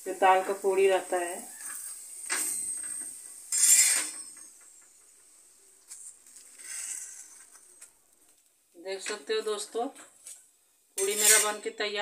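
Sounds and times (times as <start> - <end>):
spatula scraping on iron pan: 1.4 - 5.1, 6.3 - 7.5, 11.0 - 11.8.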